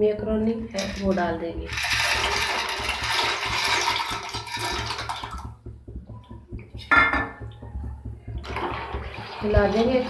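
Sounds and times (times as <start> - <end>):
dry pasta pouring into pot: 1.7 - 5.4.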